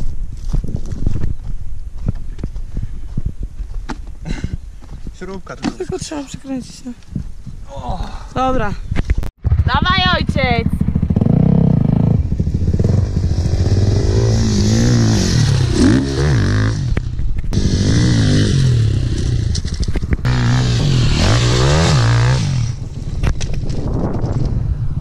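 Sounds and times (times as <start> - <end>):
dirt bike engine revving: 9.4 - 22.8.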